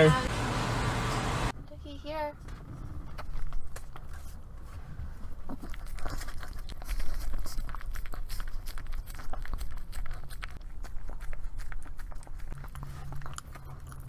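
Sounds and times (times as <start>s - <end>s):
dog licking and lapping: 5.4s - 14.0s.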